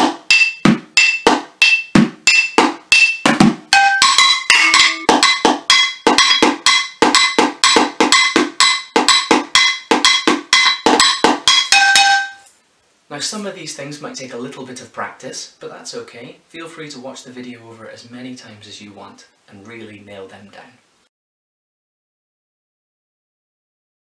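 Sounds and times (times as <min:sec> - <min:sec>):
spoons drumming on saucepans: 0:00.0 - 0:12.5.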